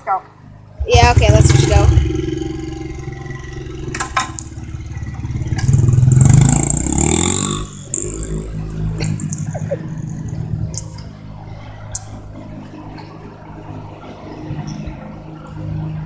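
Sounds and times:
dirt bike engine revving: 0.8 - 11.0.

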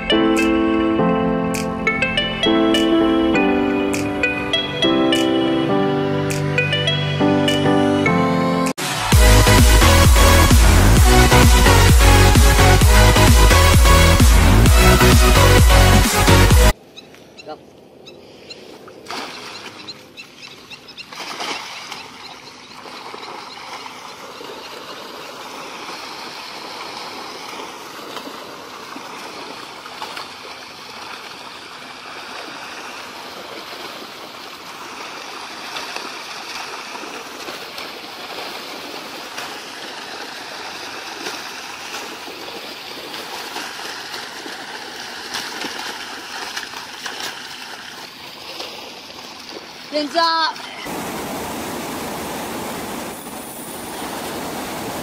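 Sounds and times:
net splashing into water: 19.0 - 19.8, 21.1 - 22.2, 22.8 - 49.9.

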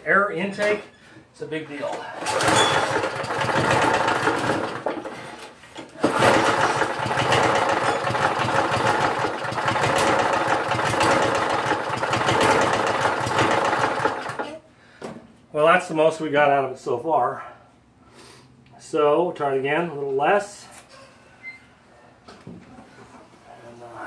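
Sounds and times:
small mower engine running: 2.2 - 5.4, 6.0 - 14.6.

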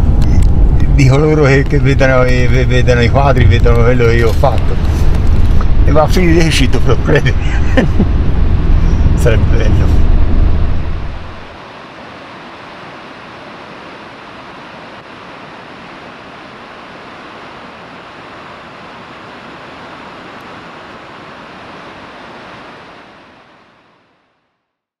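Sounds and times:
river water rushing over a weir: 11.5 - 24.1.

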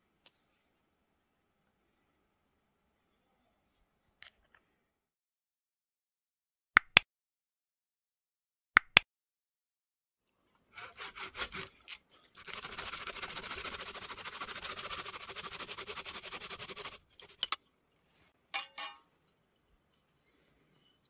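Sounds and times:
hand saw cutting wood: 10.7 - 17.6.

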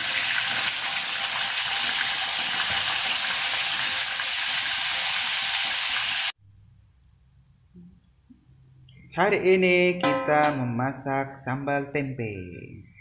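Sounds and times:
fish frying in hot oil: 0.0 - 6.4.

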